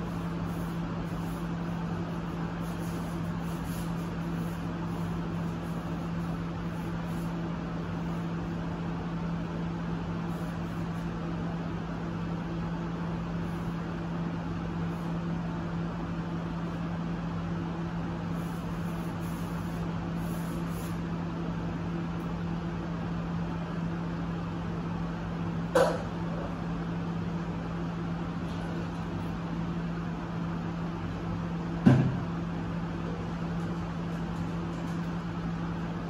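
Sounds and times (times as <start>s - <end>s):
room noise hiss: 0.0s - 16.9s, 17.5s - 22.3s
steady low hum: 0.0s - 36.0s.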